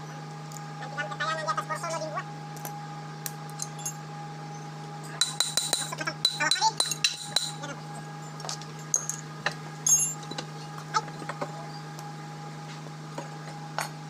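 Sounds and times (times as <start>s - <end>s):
metal clinks and clanks: 9.8s - 10.4s.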